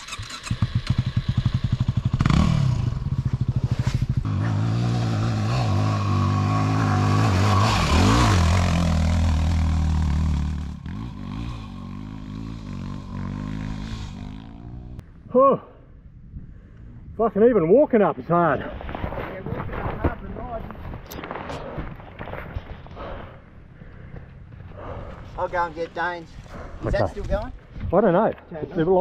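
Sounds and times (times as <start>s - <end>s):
dirt bike engine revving: 0.0s - 15.0s.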